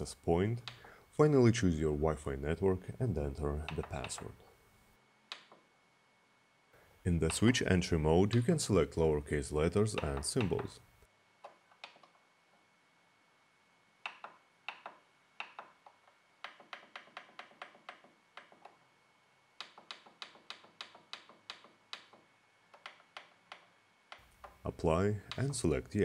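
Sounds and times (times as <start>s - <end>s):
plastic buttons clicking: 3.6s - 4.4s, 9.9s - 10.8s, 25.2s - 25.6s.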